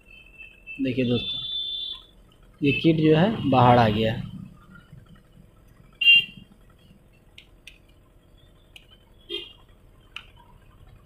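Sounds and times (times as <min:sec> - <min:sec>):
faint ticks: 0:04.6 - 0:11.0.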